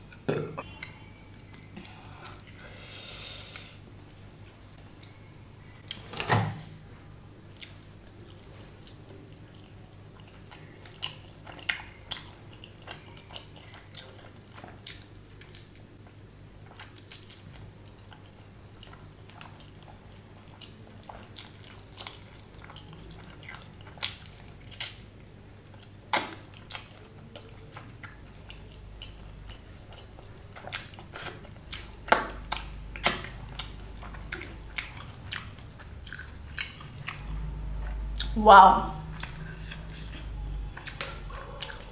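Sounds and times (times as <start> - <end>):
chewing and biting: 7.5 - 15.8, 16.5 - 38.4, 39.1 - 41.9.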